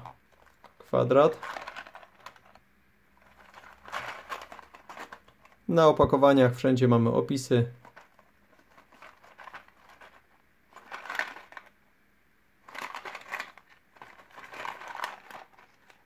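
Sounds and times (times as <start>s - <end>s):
cardboard boxes rustling and scraping: 3.2s - 5.6s.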